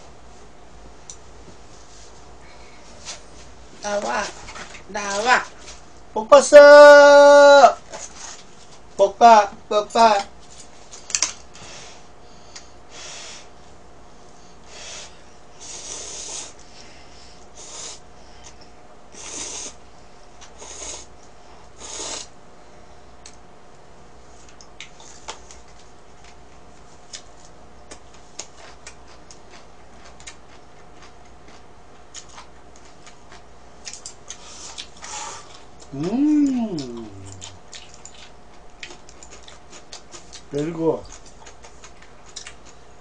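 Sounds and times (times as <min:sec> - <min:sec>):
person slurping noodles: 0:15.6 - 0:16.6, 0:19.2 - 0:19.8, 0:21.8 - 0:22.3
chewing: 0:24.5 - 0:42.8.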